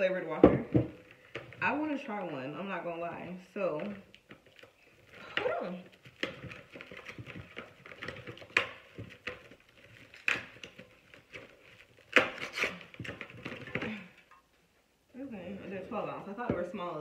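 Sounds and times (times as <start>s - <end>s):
packaging rustling and tearing: 3.9s - 14.0s.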